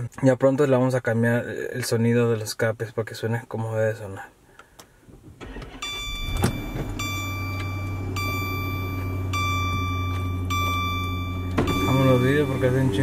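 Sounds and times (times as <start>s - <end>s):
car engine idling: 5.4s - 13.0s
dashboard warning chime: 5.4s - 13.0s.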